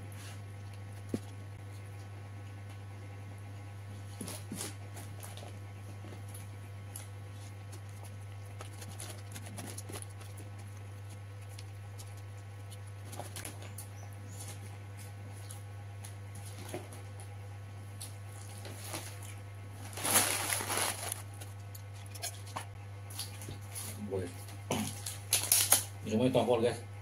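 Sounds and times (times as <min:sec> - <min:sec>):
steady low hum: 0:00.0 - 0:27.0
chewing smacks: 0:06.2 - 0:16.6
fingers on paper wrapper: 0:07.3 - 0:14.6, 0:18.3 - 0:22.6.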